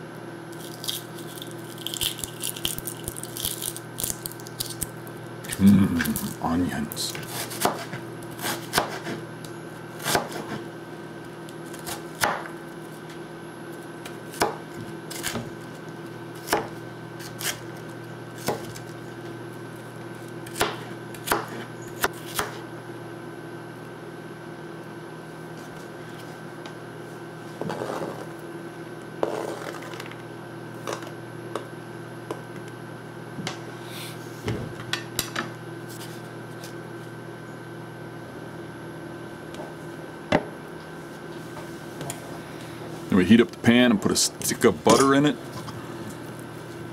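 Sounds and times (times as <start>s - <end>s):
knife chopping on plastic board: 7.3s - 9.2s, 10.0s - 10.6s.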